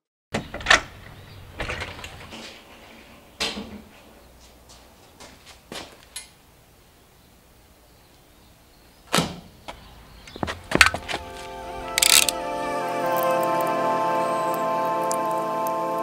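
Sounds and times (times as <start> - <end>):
metal door clunking and rattling: 0.3 - 2.4.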